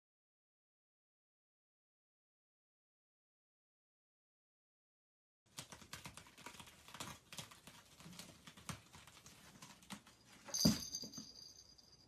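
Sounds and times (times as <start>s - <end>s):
cat claws scratching rope: 5.6s - 10.2s.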